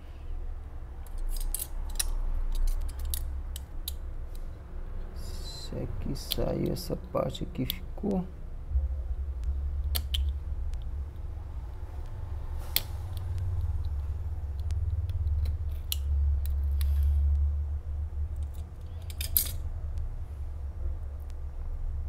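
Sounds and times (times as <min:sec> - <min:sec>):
steady low hum: 0:00.0 - 0:22.0
metal tool clicking and scraping: 0:01.0 - 0:04.4, 0:18.4 - 0:19.6.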